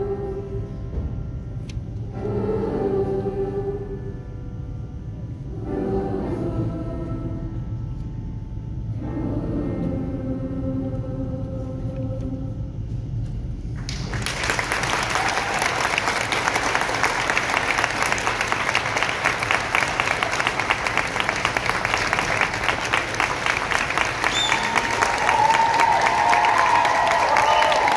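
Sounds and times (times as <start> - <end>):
audience clapping: 13.8 - 27.9.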